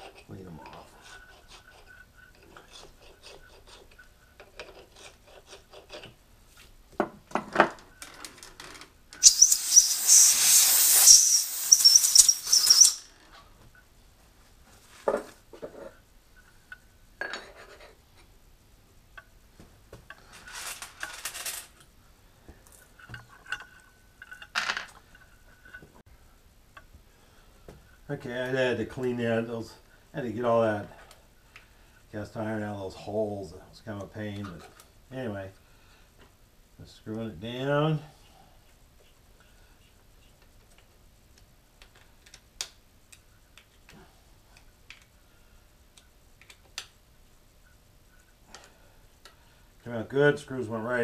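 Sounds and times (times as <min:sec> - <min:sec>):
hand tool scraping and clicking: 0:00.0 - 0:06.2, 0:09.2 - 0:13.1
rag rubbing over metal: 0:00.0 - 0:06.2
spray hiss: 0:09.2 - 0:13.1.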